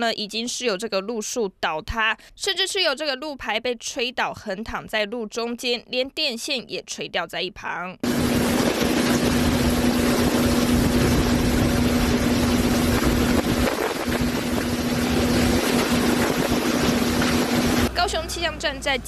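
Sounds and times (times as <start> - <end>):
gusting wind on microphone: 8.0 - 17.9
torrential rain: 8.0 - 17.9
steady low hum: 8.0 - 18.0.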